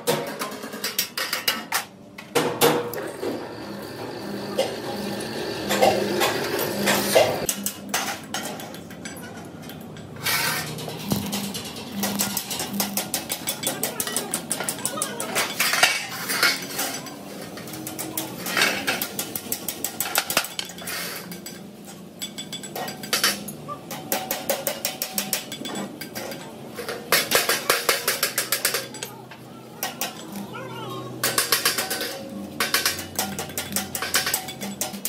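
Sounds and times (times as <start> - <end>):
metal-on-metal tapping: 11.1 - 15.9.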